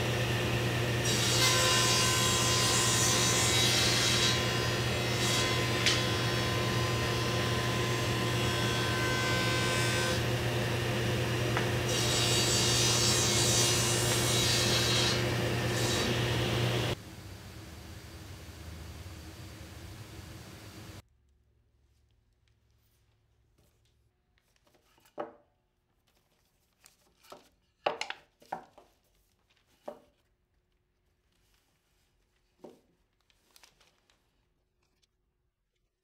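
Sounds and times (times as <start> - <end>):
woodshop machine motor hum: 4.3 - 21.0.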